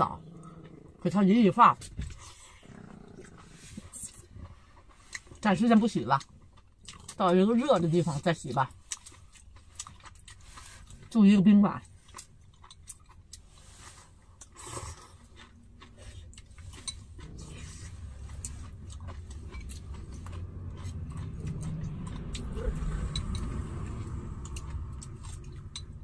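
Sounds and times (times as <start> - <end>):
chewing: 0.0 - 26.0
low rumble: 16.0 - 26.0
chopsticks clicking on bowls: 16.3 - 26.0.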